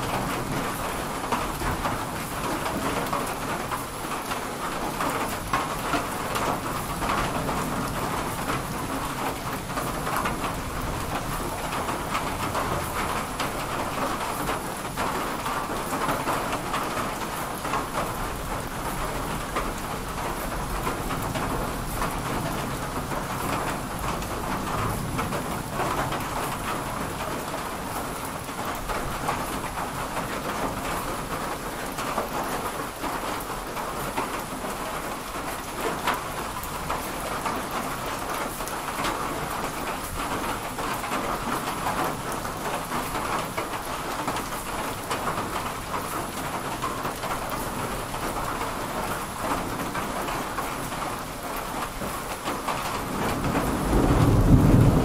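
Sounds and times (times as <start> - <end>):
heavy rain: 0.0 - 55.0
low thunder rumble: 53.0 - 55.0.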